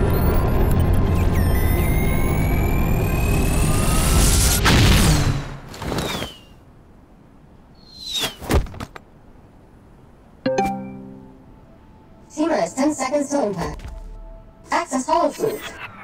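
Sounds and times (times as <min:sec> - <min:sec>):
jetpack roar with rising whine: 0:00.0 - 0:04.6
falling whistles: 0:01.2 - 0:04.6, 0:05.9 - 0:06.6, 0:07.8 - 0:08.5.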